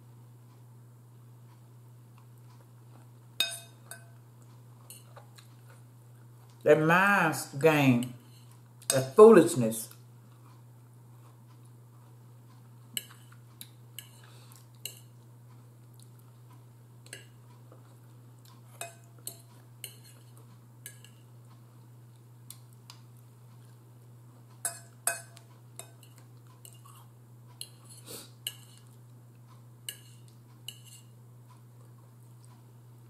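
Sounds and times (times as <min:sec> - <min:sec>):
fork clinking against a bowl: 0:03.4 - 0:04.2, 0:04.8 - 0:05.2, 0:13.0 - 0:13.4, 0:14.0 - 0:15.1, 0:17.0 - 0:17.4, 0:18.7 - 0:21.3, 0:24.6 - 0:27.0, 0:27.6 - 0:28.9, 0:29.9 - 0:31.1.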